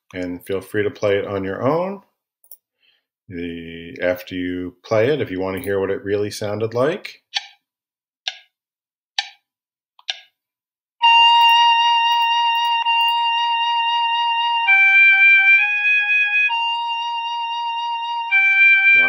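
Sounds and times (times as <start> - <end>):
metronome clicks: 7.3 - 7.6, 8.3 - 8.5, 9.2 - 9.4, 10.0 - 10.3
synthesized flute melody: 11.0 - 19.0.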